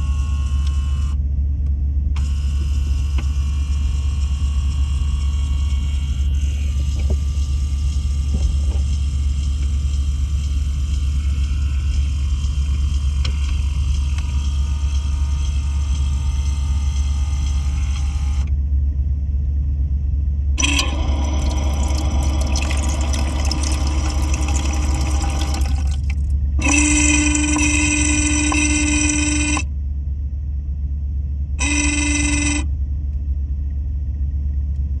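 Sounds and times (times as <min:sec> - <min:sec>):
steady low hum: 0:00.0 - 0:35.0
water filling ice tray: 0:20.6 - 0:26.2
high whining tone: 0:20.6 - 0:29.7, 0:31.6 - 0:32.7.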